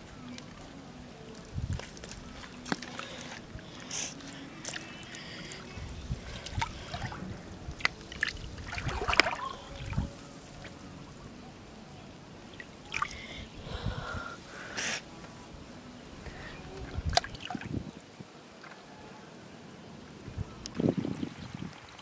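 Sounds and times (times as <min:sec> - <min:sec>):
water sloshing around wading person: 0:01.2 - 0:10.9, 0:12.5 - 0:13.4.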